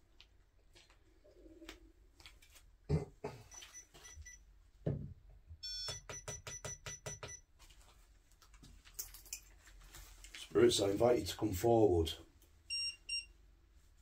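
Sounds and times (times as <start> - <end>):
electronic detector beeping: 5.6 - 7.4, 12.7 - 13.3.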